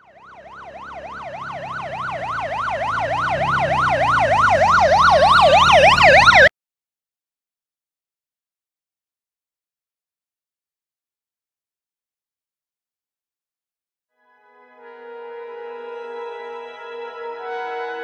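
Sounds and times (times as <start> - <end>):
emergency siren yelping: 0.0 - 6.5, 15.5 - 18.0.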